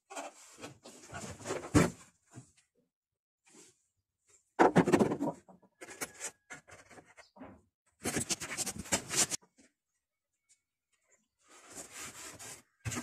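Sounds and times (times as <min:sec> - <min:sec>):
plastic scraping and knocking: 0:04.6 - 0:09.4.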